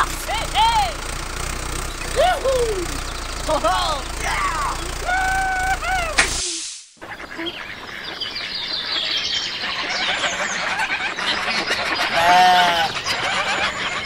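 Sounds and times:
birds chirping: 0:00.0 - 0:06.4, 0:07.0 - 0:14.0
farm animal bleat: 0:12.1 - 0:13.5.

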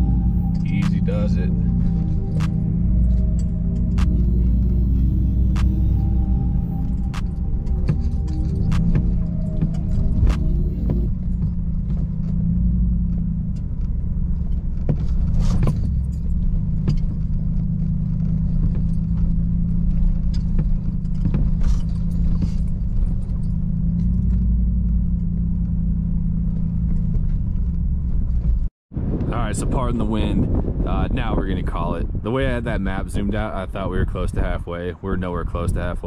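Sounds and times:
pickup engine and tyres droning: 0:00.0 - 0:36.0
truck clicks and rattles: 0:07.0 - 0:28.7.

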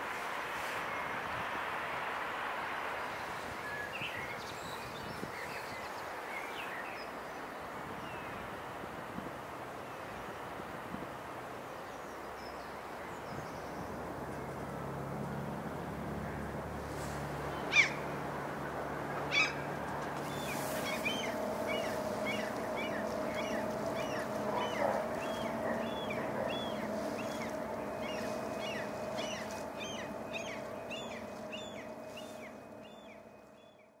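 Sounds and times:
steady machine hum: 0:15.6 - 0:33.9
songbird chirping: 0:19.0 - 0:34.0.

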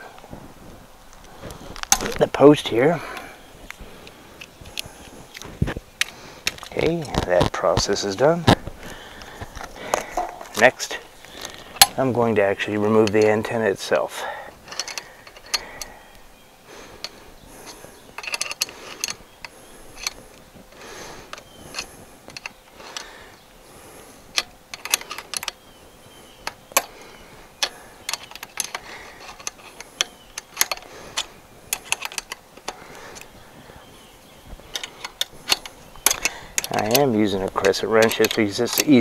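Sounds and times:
wrench clicking on nuts: 0:12.8 - 0:13.4, 0:14.6 - 0:16.0, 0:17.0 - 0:20.2, 0:24.3 - 0:25.6, 0:26.4 - 0:33.4, 0:34.7 - 0:39.0.

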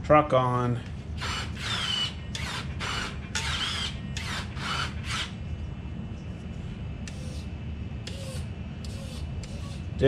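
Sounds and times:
rc truck motor whirring: 0:01.2 - 0:05.4.

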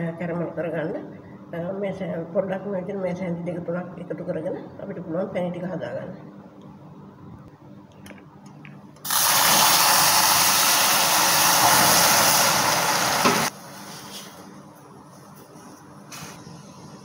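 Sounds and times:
syrup boiling with sizzling hiss: 0:09.1 - 0:14.6.

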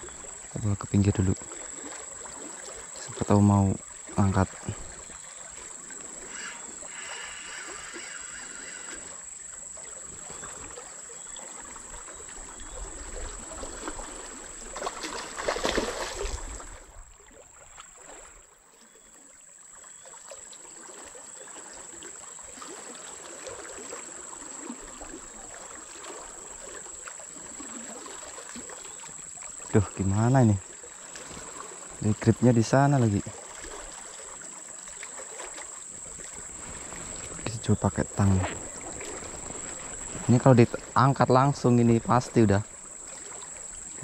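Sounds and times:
river water rushing: 0:22.0 - 0:44.0.

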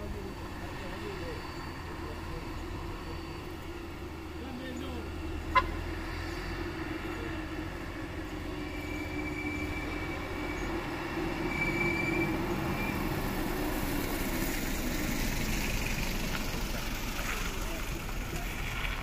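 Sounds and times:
thin steady whine: 0:00.0 - 0:14.4
truck diesel engine labouring: 0:00.0 - 0:19.0
wheel loader working: 0:00.0 - 0:19.0.

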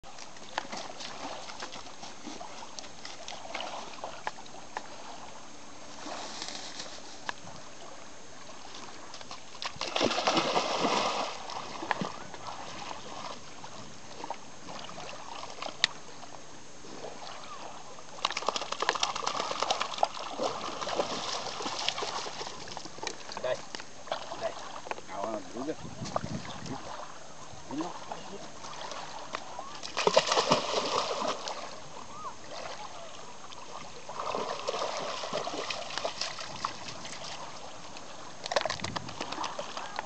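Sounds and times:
dog splashing in water: 0:09.6 - 0:13.3, 0:18.2 - 0:22.7, 0:29.8 - 0:31.8, 0:34.1 - 0:37.6.

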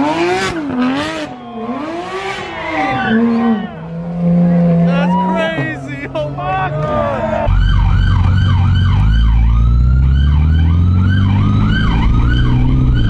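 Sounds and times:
police siren yelping: 0:04.9 - 0:05.8, 0:06.7 - 0:13.0
low rumble: 0:07.4 - 0:13.0.

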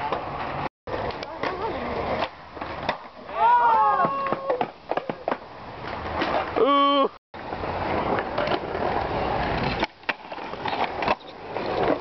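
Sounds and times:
skateboard clacks: 0:00.0 - 0:06.6
skateboard wheels rolling on concrete: 0:00.0 - 0:12.0.

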